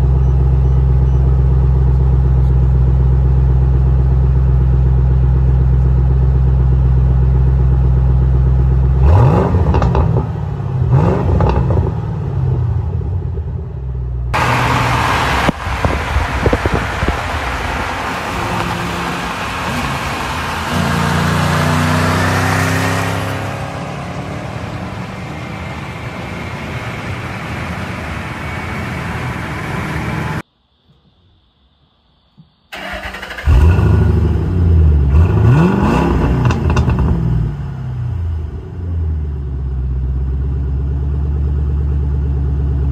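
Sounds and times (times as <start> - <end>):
car engine idling: 0.0 - 30.4, 32.7 - 42.9
road noise: 0.0 - 31.0, 32.7 - 42.9
car engine starting and revving: 3.3 - 30.4, 32.7 - 42.9
car driving by: 9.9 - 30.4.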